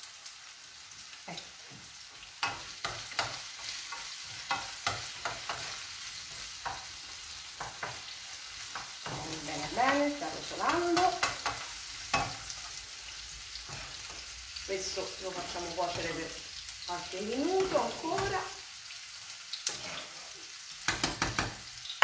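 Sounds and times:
vegetables sizzling in frying pan: 0:00.0 - 0:22.0
wooden spoon clacking on pan: 0:02.4 - 0:12.8, 0:20.8 - 0:21.7.

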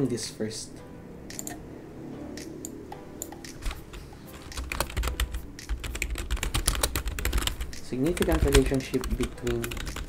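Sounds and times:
typing on computer keyboard: 0:03.2 - 0:10.0.

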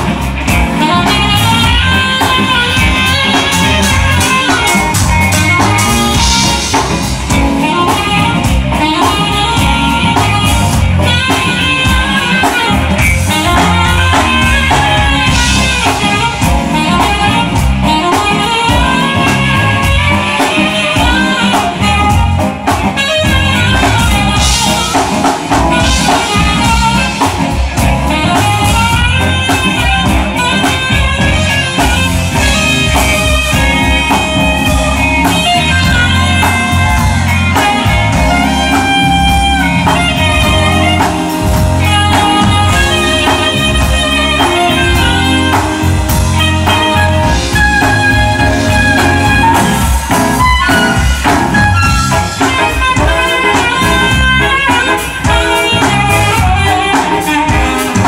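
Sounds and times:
drum kit: 0:00.0 - 0:58.0
electric guitar: 0:00.0 - 0:58.0
keyboard: 0:00.0 - 0:58.0
saxophone melody: 0:00.0 - 0:58.0.

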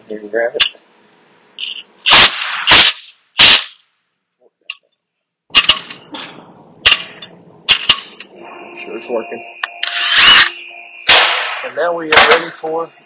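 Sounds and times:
air impact wrench bursts: 0:01.6 - 0:03.8
sharp metallic clicks: 0:06.8 - 0:08.3.

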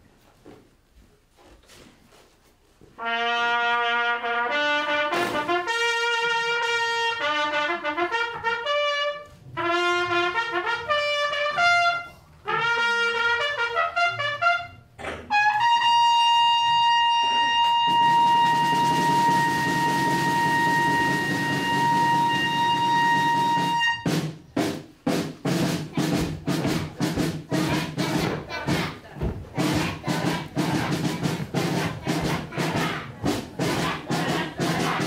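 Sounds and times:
trumpet playing melody: 0:03.0 - 0:24.2.

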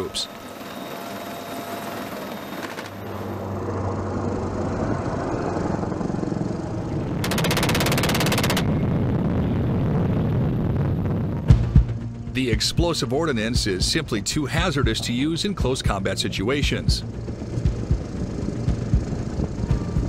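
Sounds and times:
helicopter rotor and engine: 0:00.0 - 0:09.6, 0:13.4 - 0:20.0
rapid gunfire burst: 0:07.2 - 0:08.7.

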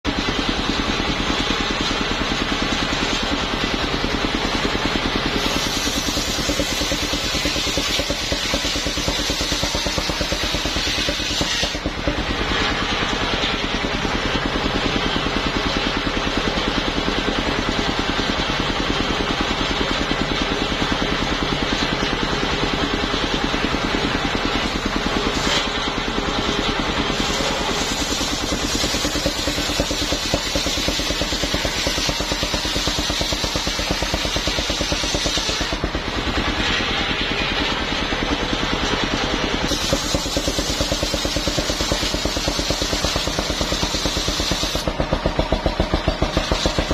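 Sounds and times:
sawmill engine chugging: 0:00.0 - 0:46.9
circular saw blade cutting log: 0:04.5 - 0:13.9, 0:24.5 - 0:46.9.

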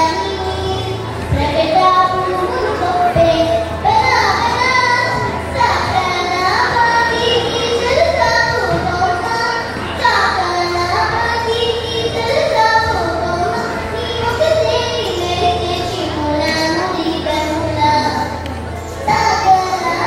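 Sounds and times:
girl singing into microphone: 0:00.0 - 0:20.0.

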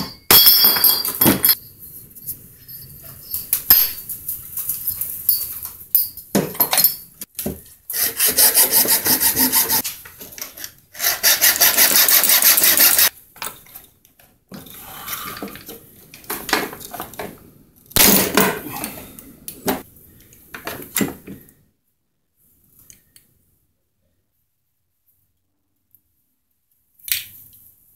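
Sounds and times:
fast repeated scraping: 0:07.9 - 0:09.8, 0:11.0 - 0:13.1.

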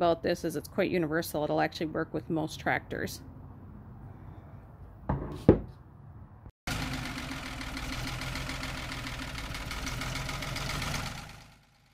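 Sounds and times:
metal knocking on wooden table: 0:05.1 - 0:05.8
engine idling: 0:06.7 - 0:11.9.

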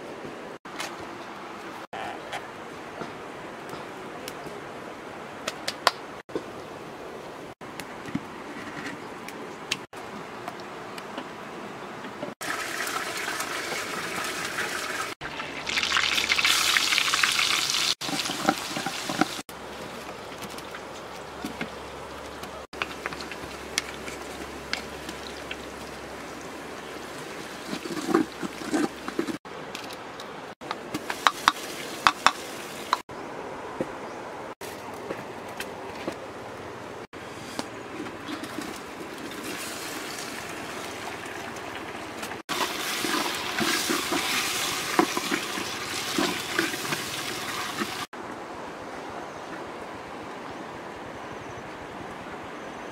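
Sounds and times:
oil sizzling in a pot: 0:12.4 - 0:19.4, 0:42.5 - 0:48.1.

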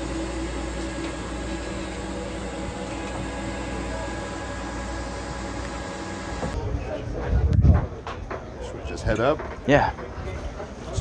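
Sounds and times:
engine room machinery hum: 0:00.0 - 0:06.7.

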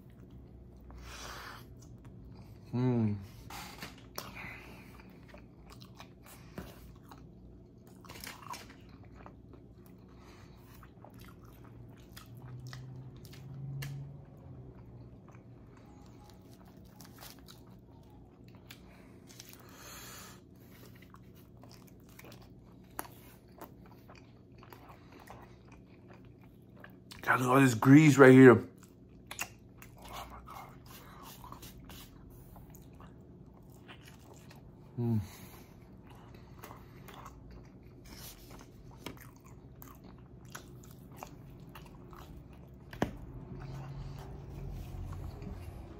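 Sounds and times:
chewing pizza: 0:00.0 - 0:45.9
person humming: 0:02.7 - 0:03.3.

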